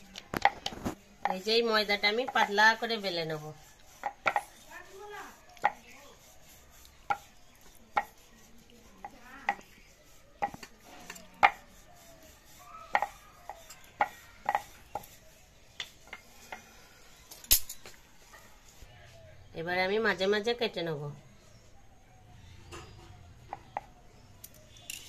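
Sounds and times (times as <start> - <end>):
rolling pin rolling dough: 0.0 - 16.9.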